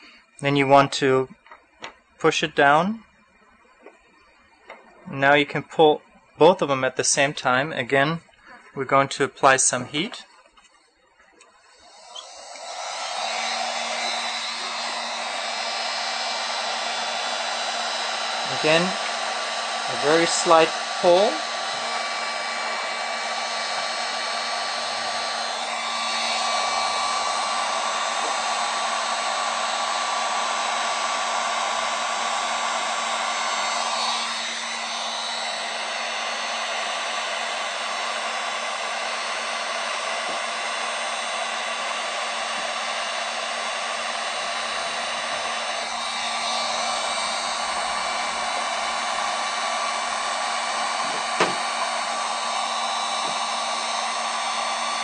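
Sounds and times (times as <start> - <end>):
heat gun blowing: 11.4 - 55.0
short knock: 51.1 - 51.6.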